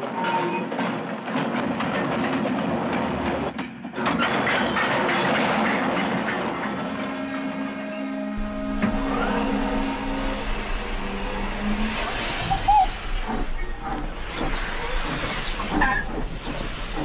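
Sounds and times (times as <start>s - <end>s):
steam locomotive hissing and chuffing: 8.4s - 17.0s.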